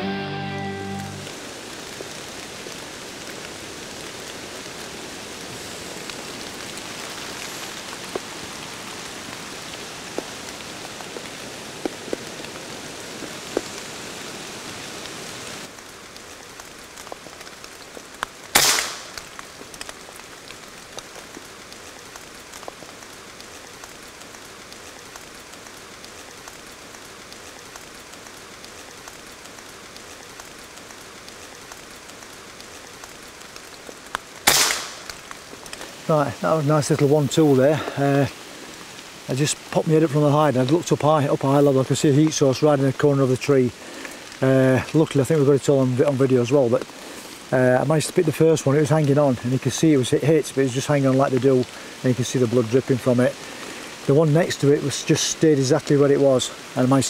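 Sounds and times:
steady rain: 0.0s - 57.0s
air rifle shot: 18.5s - 19.2s, 34.4s - 35.2s.

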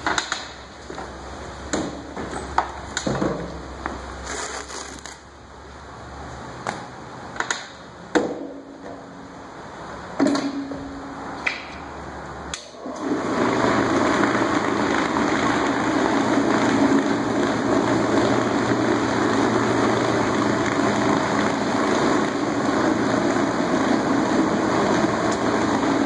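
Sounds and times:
floor cleaning machine motor: 12.8s - 26.0s.

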